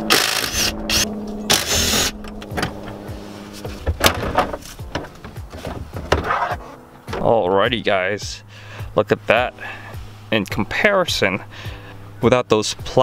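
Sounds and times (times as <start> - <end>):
small electric motor running: 0.0 - 2.2.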